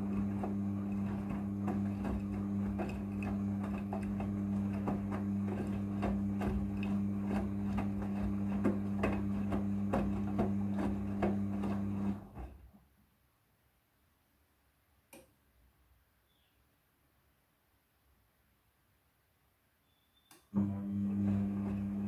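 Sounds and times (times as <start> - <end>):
washing machine motor hum: 0.0 - 12.7, 20.5 - 22.0.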